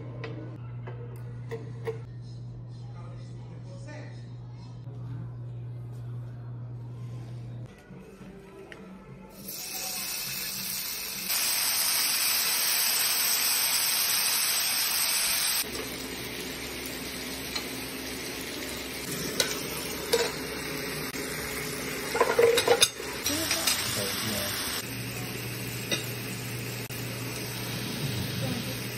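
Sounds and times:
meat sizzling on grill pan: 0:09.6 - 0:28.9.

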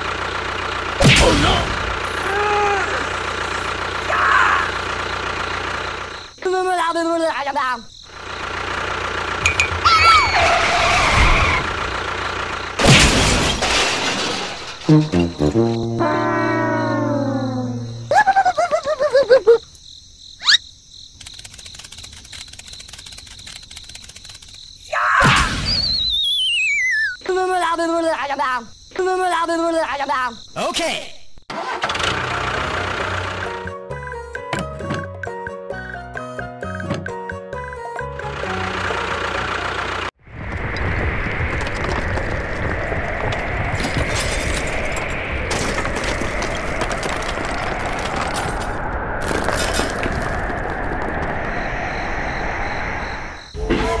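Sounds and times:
crickets chirring: 0:01.8 - 0:12.9, 0:14.7 - 0:31.5, 0:40.4 - 0:54.0
cartoon wobbling falling tone: 0:14.9 - 0:18.5
crunching crackling noise: 0:21.2 - 0:24.7, 0:40.3 - 0:51.6
quick rising whistle: 0:25.7 - 0:27.2, 0:51.1 - 0:54.0.

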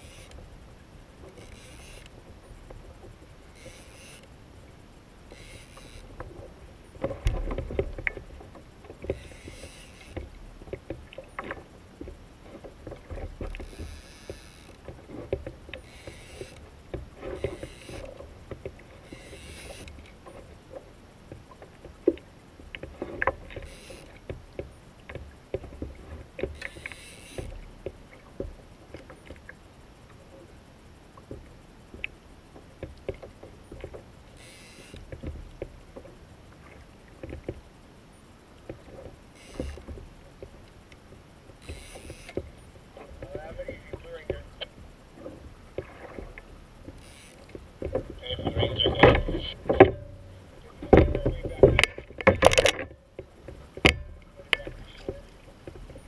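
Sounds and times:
fishing reel clicking: 0:00.0 - 0:00.4, 0:01.3 - 0:02.2, 0:03.5 - 0:04.3, 0:05.3 - 0:06.2, 0:09.1 - 0:10.3, 0:13.6 - 0:14.8, 0:15.8 - 0:16.6, 0:17.4 - 0:18.2, 0:19.0 - 0:20.0, 0:23.6 - 0:24.2, 0:26.6 - 0:27.6, 0:34.4 - 0:35.0, 0:39.4 - 0:39.8, 0:41.6 - 0:42.4, 0:47.0 - 0:47.6
water lapping against kayak hull: 0:00.0 - 0:56.0.

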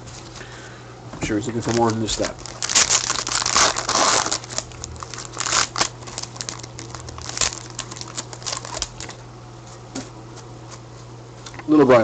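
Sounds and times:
card pack wrapper crinkling and tearing: 0:01.5 - 0:09.2.

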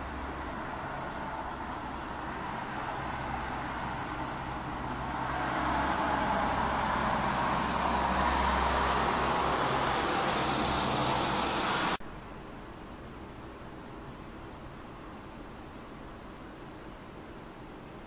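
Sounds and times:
passing vehicle: 0:00.0 - 0:12.0.

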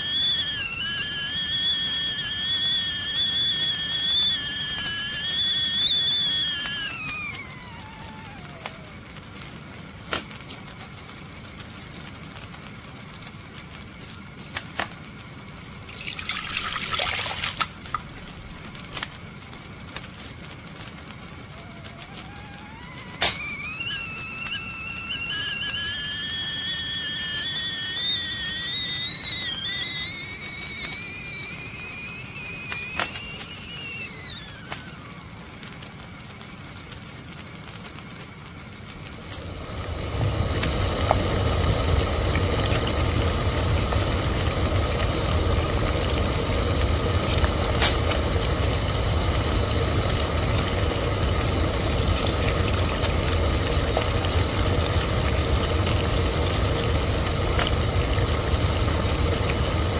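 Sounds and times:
tea kettle whistling: 0:00.0 - 0:09.2, 0:15.1 - 0:19.3, 0:20.8 - 0:36.1, 0:38.8 - 0:59.9
low rumbling roar: 0:39.1 - 0:59.9.

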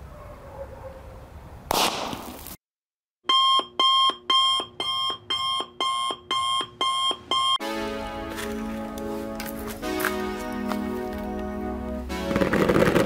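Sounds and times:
firecracker blast: 0:01.7 - 0:02.6, 0:12.1 - 0:13.0
electronic alarm beeping: 0:03.3 - 0:07.6.

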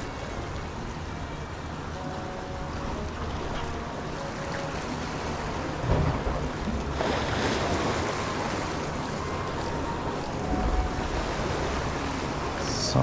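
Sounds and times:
waves splashing against breakwater: 0:03.1 - 0:13.0.

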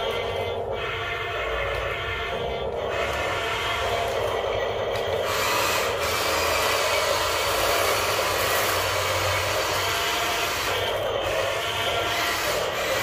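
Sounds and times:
small electric motors whirring: 0:02.9 - 0:13.0.

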